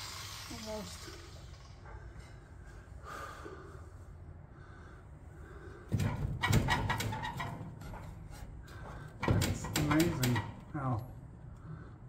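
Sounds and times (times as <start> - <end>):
sheet metal clattering and scraping: 5.9 - 10.9.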